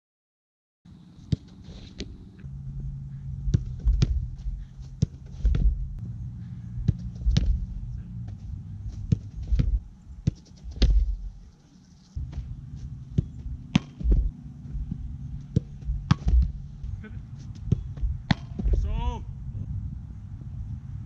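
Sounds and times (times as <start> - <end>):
soccer ball knocks: 1.3 - 2.1, 3.5 - 6.0, 6.8 - 7.7, 8.3 - 11.3, 12.2 - 16.6, 17.6 - 19.0
wind rumble on microphone: 1.8 - 11.4, 12.2 - 21.0.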